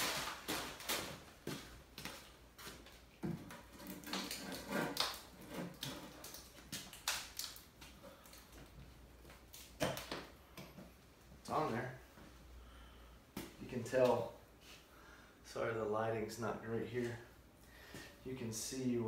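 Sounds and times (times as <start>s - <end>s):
gritty concrete scraping: 3.6s - 6.5s.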